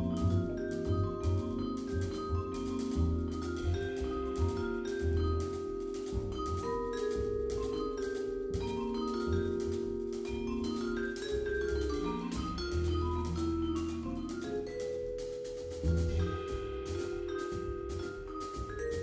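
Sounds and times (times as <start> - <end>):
upright bass: 0.0 - 5.5, 15.8 - 19.0
vibraphone struck with mallets: 0.0 - 19.0
drum kit cymbal strokes: 11.6 - 19.0.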